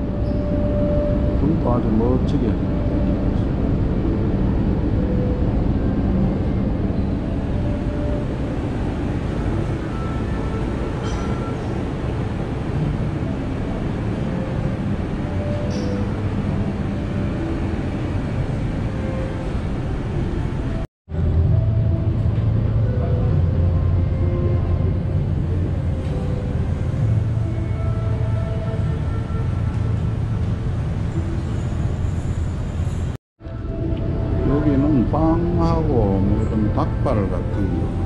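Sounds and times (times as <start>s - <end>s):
street traffic rumble: 0.0s - 38.0s.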